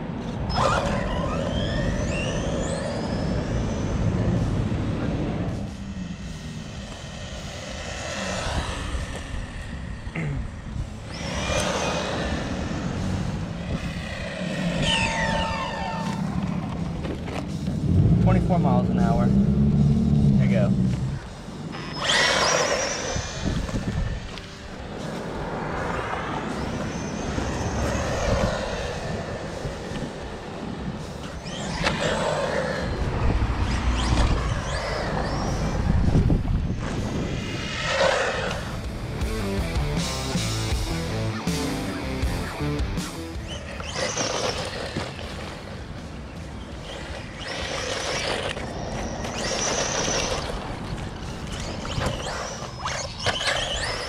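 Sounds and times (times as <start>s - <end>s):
rc car motor whining: 0.2s - 17.4s, 19.9s - 39.3s, 40.8s - 54.0s
low rumble: 1.6s - 21.7s, 23.0s - 43.6s.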